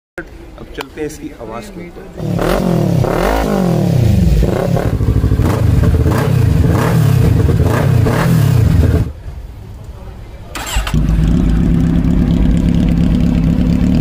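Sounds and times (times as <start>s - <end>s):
motorcycle engine revving: 2.2s - 9.2s, 10.6s - 14.0s.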